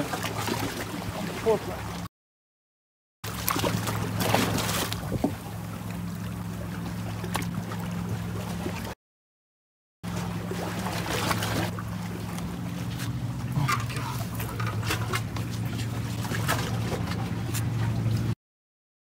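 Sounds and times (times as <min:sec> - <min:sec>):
low engine hum: 0:03.3 - 0:09.0, 0:10.0 - 0:18.4.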